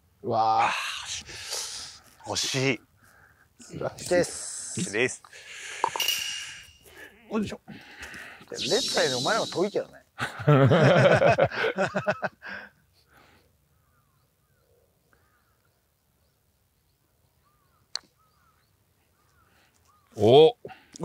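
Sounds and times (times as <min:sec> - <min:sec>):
faint bird chirps: 0:05.8 - 0:07.5, 0:12.9 - 0:20.4.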